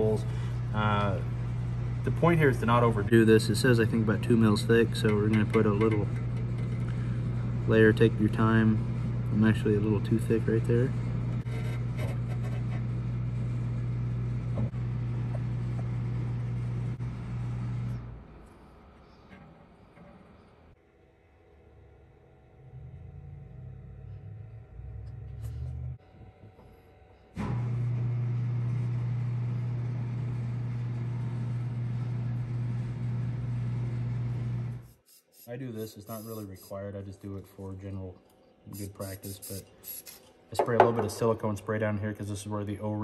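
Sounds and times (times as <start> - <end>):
low machine hum: 0.0 - 34.9
low-pitched hum: 21.6 - 26.7.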